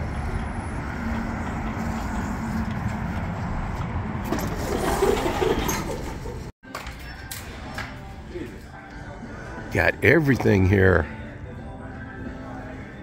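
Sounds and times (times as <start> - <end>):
road traffic rumble: 0.0 - 6.5.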